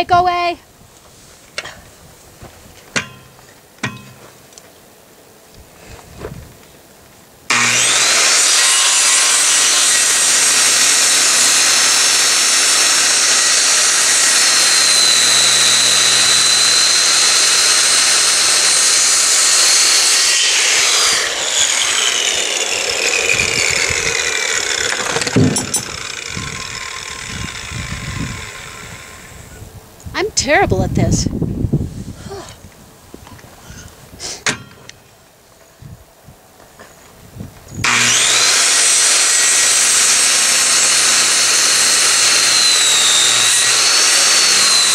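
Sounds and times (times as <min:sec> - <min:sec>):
circular saw cutting wood: 0:07.5 - 0:29.6, 0:37.8 - 0:44.9
saw blade winding down: 0:07.5 - 0:29.6, 0:37.8 - 0:44.9.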